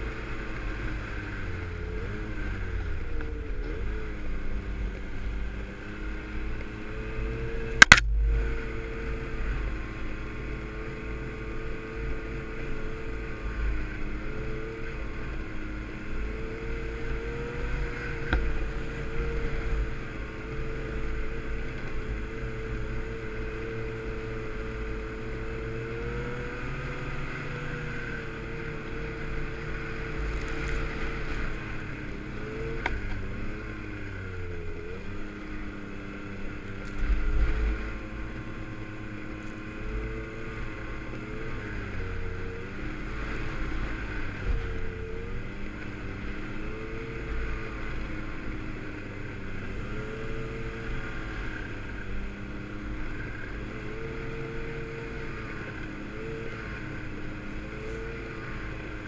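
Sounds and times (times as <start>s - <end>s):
snowmobile engine running: 0.0s - 59.0s
wind rumbling on microphone: 0.0s - 59.0s.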